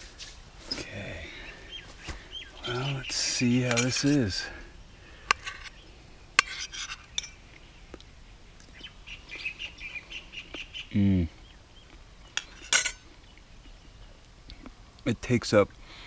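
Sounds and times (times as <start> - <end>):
birds chirping: 0.6 - 16.0
spoon scrape: 5.3 - 5.8, 6.4 - 7.4, 12.4 - 13.0
person humming mm: 10.9 - 11.4
spoon clinking against metal bowl: 12.4 - 13.0.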